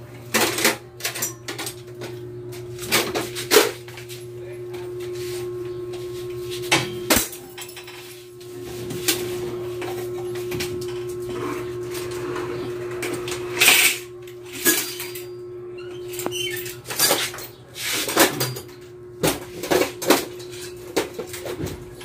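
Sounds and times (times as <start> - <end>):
steady electrical hum: 0.0 - 22.0.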